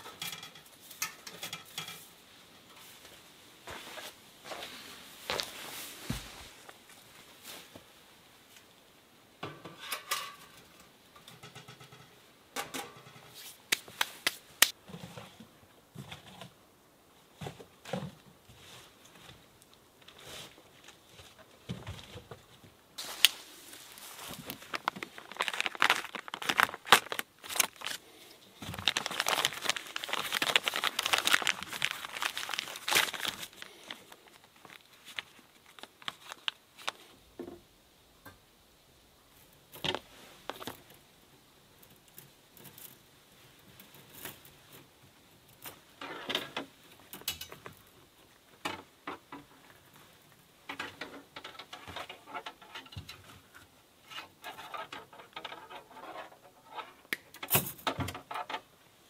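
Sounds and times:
wire clicking and rustling: 0:00.0 - 0:02.9, 0:09.5 - 0:14.8, 0:23.0 - 0:37.0, 0:41.8 - 0:48.0, 0:48.6 - 0:58.7
plastic bag crinkling: 0:23.0 - 0:37.0.

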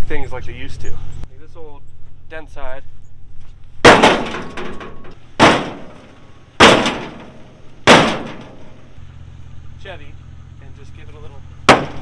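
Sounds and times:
metal truck bed banging: 0:03.8 - 0:09.0, 0:11.6 - 0:12.0.

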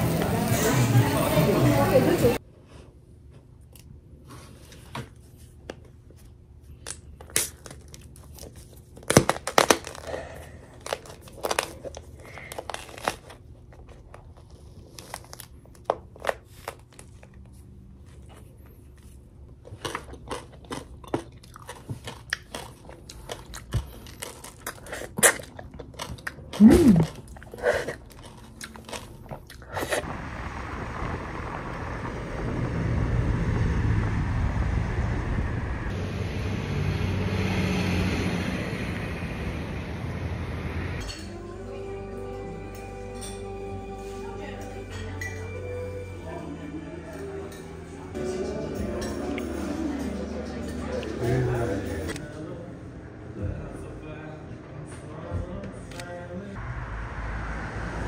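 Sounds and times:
crisp clicks and crunches: 0:06.8 - 0:17.4
low rumbling noise: 0:30.0 - 0:43.1, 0:45.7 - 0:58.0.

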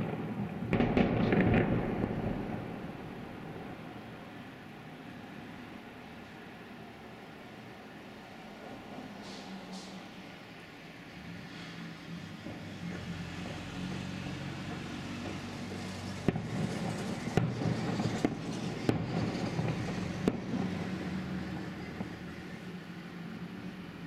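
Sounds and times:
distant firework bangs: 0:00.0 - 0:04.1.

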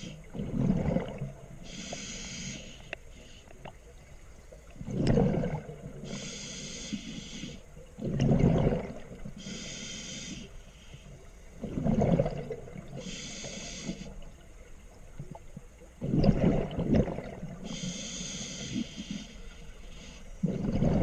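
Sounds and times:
exhaled bubbles rushing: 0:00.3 - 0:01.5, 0:04.8 - 0:06.0, 0:08.0 - 0:09.3, 0:11.6 - 0:13.0, 0:16.0 - 0:17.6, 0:20.4 - 0:21.0.

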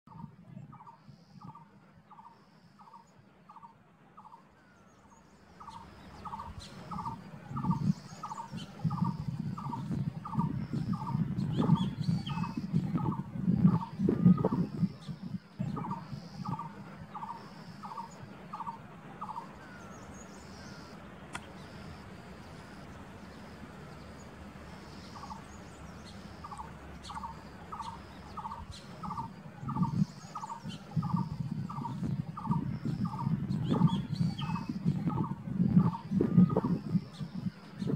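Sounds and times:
small birds chirping faintly: 0:00.1 - 0:37.9
low rumble: 0:06.0 - 0:37.9.

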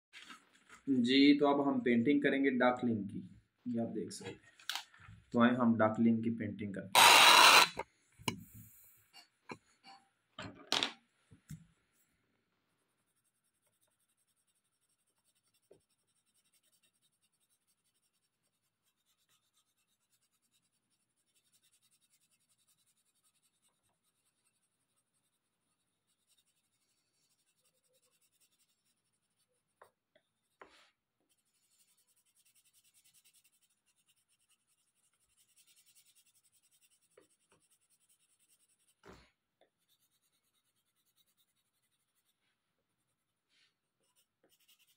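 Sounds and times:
pencil scratching on paper: 0:07.0 - 0:07.8, 0:12.8 - 0:43.4, 0:44.0 - 0:44.9.

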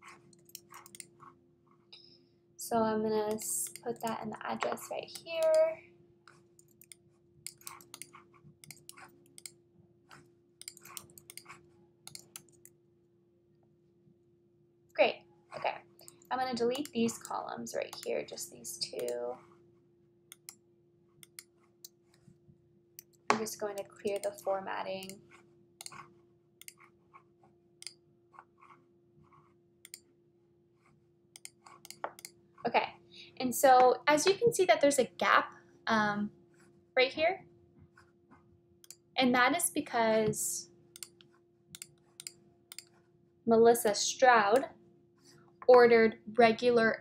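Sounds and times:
computer keyboard clicking: 0:00.0 - 0:01.1, 0:03.3 - 0:05.7, 0:06.6 - 0:09.5, 0:10.6 - 0:12.7, 0:16.0 - 0:18.1, 0:23.0 - 0:25.2, 0:31.4 - 0:32.3, 0:41.0 - 0:41.2, 0:41.8 - 0:42.9
faint steady hum: 0:00.1 - 0:38.2.

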